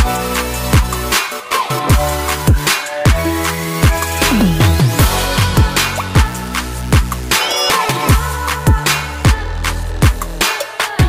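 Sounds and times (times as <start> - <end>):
electronic music with steady beat: 0.0 - 8.2.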